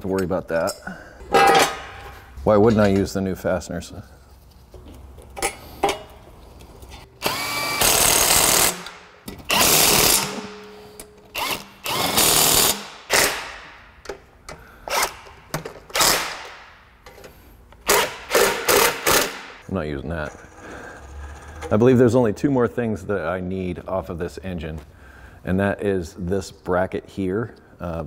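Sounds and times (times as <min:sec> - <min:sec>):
impact wrench bursts: 0:07.2 - 0:13.7, 0:14.8 - 0:16.6, 0:17.8 - 0:19.6.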